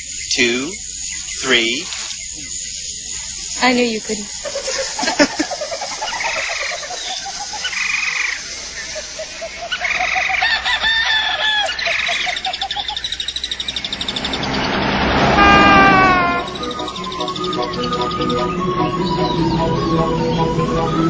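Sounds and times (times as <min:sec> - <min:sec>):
bird calls: 0:00.0 - 0:21.0
frogs croaking: 0:00.0 - 0:21.0
rush of noise: 0:12.8 - 0:17.8.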